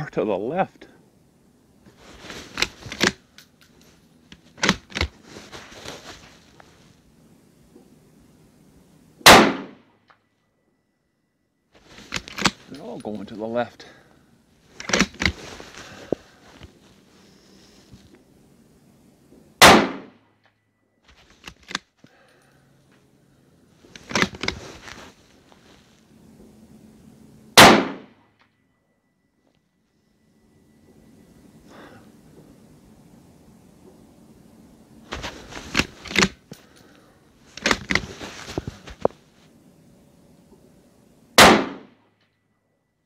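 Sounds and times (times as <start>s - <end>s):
rifle bolt clicking and rattling: 2.5s - 5.2s, 12.0s - 12.9s, 14.8s - 15.4s, 21.3s - 21.9s, 23.9s - 24.6s, 35.7s - 36.6s, 37.6s - 38.0s
rifle shot: 9.2s - 9.8s, 19.6s - 20.2s, 27.6s - 28.1s, 41.4s - 42.0s.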